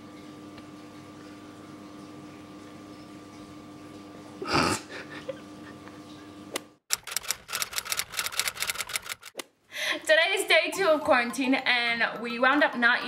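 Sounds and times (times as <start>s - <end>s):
typewriter key clicks: 6.9s - 9.3s.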